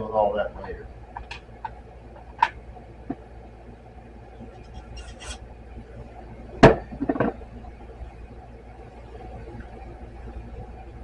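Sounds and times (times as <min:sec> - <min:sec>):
low steady hum: 0:00.0 - 0:11.0
scratchy rustle: 0:04.6 - 0:05.4.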